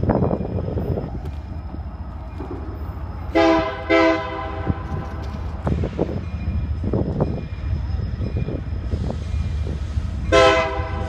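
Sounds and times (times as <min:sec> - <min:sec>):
freight train rumble: 0:00.0 - 0:11.0
locomotive air horn blasts: 0:03.3 - 0:04.8, 0:10.3 - 0:11.0.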